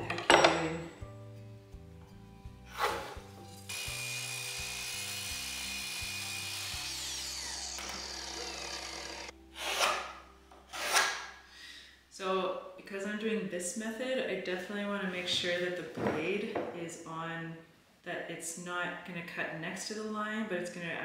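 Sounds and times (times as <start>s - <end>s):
miter saw cutting wood: 2.8s - 10.0s.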